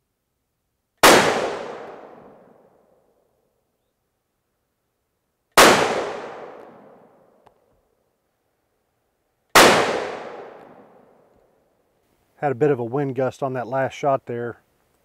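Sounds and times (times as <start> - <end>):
rifle shots echoing: 1.0 - 2.7, 5.6 - 7.2, 9.5 - 11.2.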